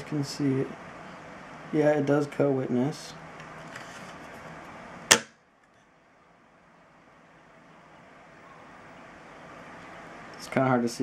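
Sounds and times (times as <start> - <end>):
faint room hiss: 0.0 - 11.0
sharp click: 5.1 - 5.4.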